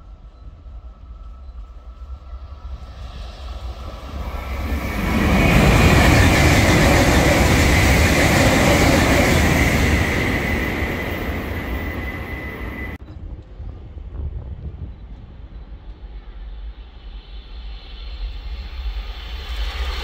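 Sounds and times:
train passing at speed: 0:00.0 - 0:20.0
high whine: 0:01.7 - 0:13.5.

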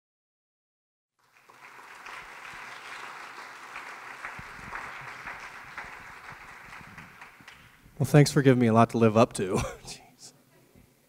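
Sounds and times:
audience applauding: 0:01.2 - 0:08.2.

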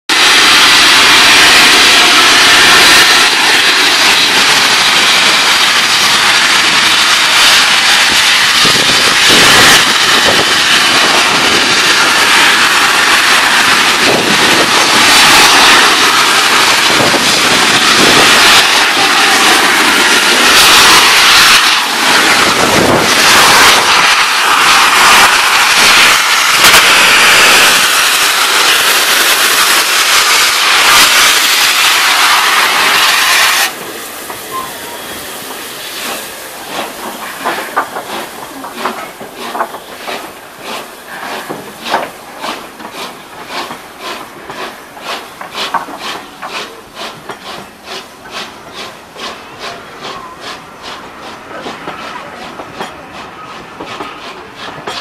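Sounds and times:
steam locomotive hissing steam: 0:00.1 - 0:55.0.

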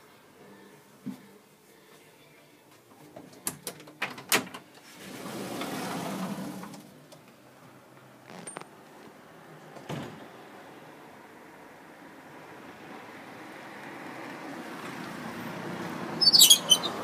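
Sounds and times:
door opening with rush: 0:04.2 - 0:07.0.

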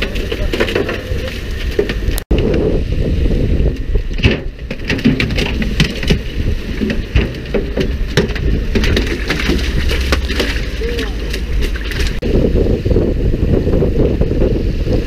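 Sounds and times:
low rumble: 0:00.0 - 0:15.0
fish splashing and knocking: 0:03.7 - 0:12.2.

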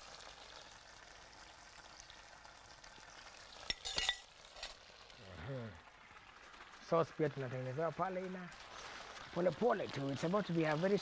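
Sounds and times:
sauce sizzling in a pan: 0:00.0 - 0:11.0
utensil clinking: 0:03.7 - 0:04.8.

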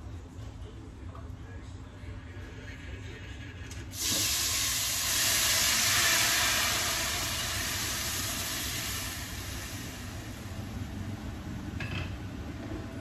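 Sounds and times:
food sizzling in hot pan: 0:04.0 - 0:10.5.

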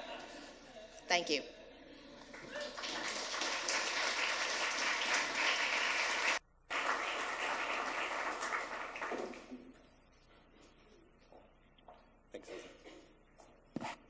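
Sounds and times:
audience applauding: 0:02.2 - 0:09.8.

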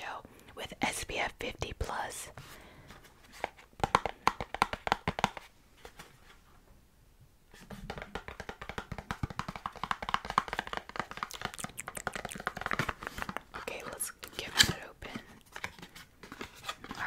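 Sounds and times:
fingers tapping on cardboard box: 0:03.8 - 0:05.4, 0:07.8 - 0:13.4.

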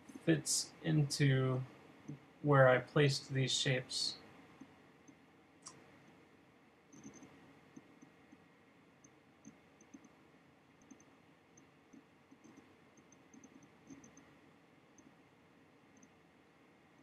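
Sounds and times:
low background hiss: 0:00.0 - 0:17.0
computer mouse clicks: 0:06.9 - 0:08.4, 0:09.0 - 0:10.2, 0:10.8 - 0:14.4, 0:15.9 - 0:16.2.

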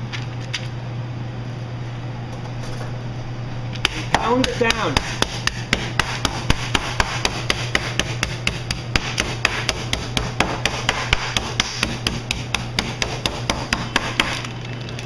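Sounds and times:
meat pounder beating meat: 0:03.8 - 0:14.5.

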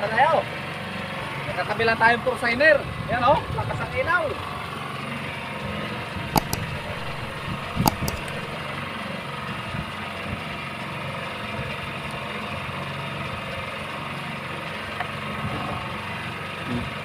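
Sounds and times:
sharp knocks: 0:06.4 - 0:08.5.

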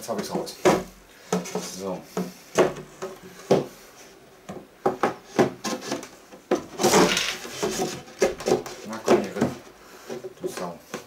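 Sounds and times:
wood rubbing and scraping on wood: 0:00.0 - 0:11.0
wooden panels knocking: 0:04.5 - 0:09.7.

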